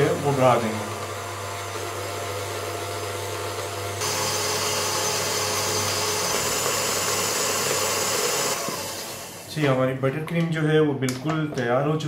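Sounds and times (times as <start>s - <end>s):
stand mixer whirring: 0.0s - 9.6s.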